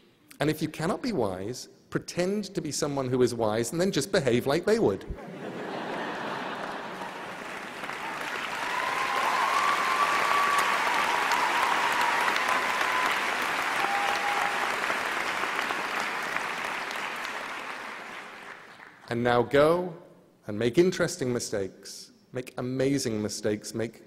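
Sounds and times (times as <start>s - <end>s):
large audience applauding: 5.5s - 19.1s.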